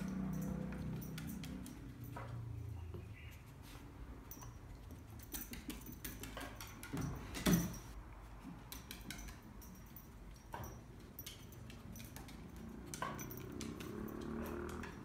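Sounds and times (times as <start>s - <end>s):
dog claws clicking on floorboards: 0.1s - 2.4s, 4.4s - 7.8s, 8.4s - 15.0s.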